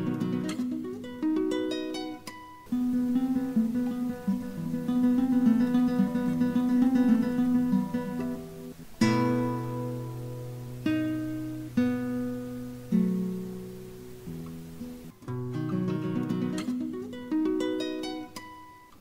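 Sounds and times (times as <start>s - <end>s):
acoustic guitar playing: 0.0s - 19.0s.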